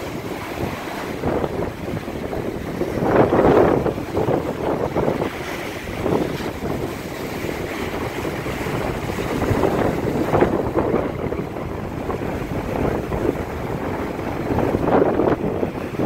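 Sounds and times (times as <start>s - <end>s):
surf breaking on beach: 0.0s - 16.0s
wind buffeting microphone: 0.0s - 16.0s.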